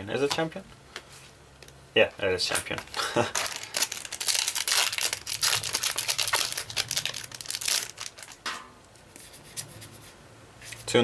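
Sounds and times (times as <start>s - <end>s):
cards rustling: 2.5s - 8.4s
foil wrapper crinkling: 2.7s - 8.5s.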